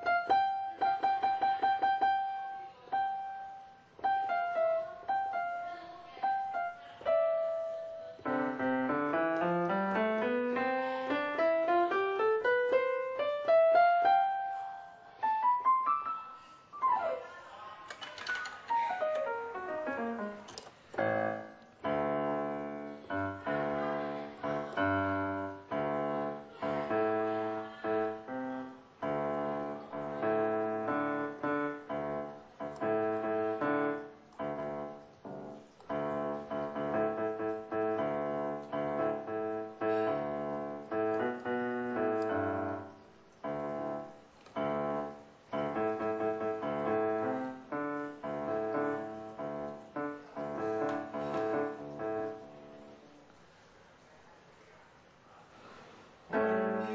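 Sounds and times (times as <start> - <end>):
digital piano playing: 0.0 - 17.5, 18.1 - 53.3, 56.3 - 56.9.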